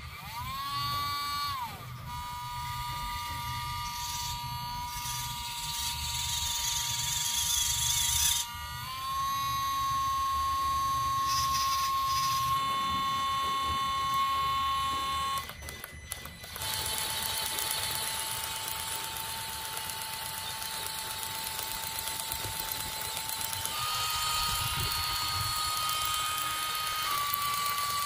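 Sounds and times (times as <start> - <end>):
toy electric motor whining: 0.0 - 28.0.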